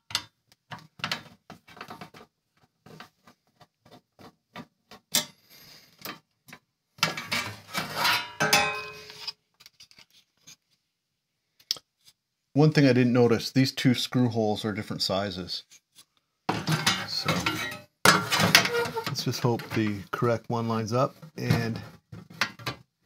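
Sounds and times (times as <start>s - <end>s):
metal scraping: 7.0s - 10.0s, 16.5s - 20.3s.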